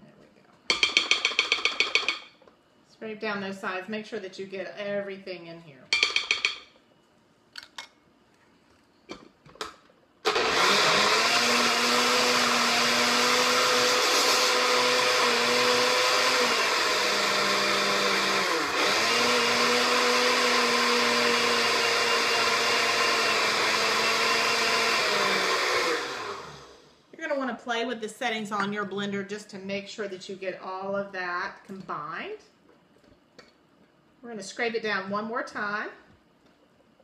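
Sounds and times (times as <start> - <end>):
blender running: 10.2 - 27.0.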